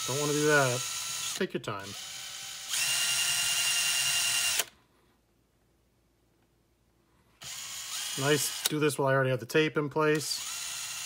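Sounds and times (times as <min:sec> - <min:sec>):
cordless drill drilling into wood: 0:00.0 - 0:04.7, 0:07.4 - 0:08.7, 0:10.2 - 0:11.0.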